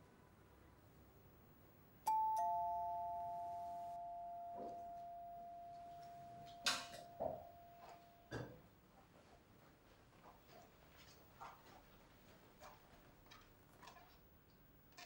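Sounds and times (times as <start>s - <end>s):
two-tone doorbell chime: 2.1s - 8.3s.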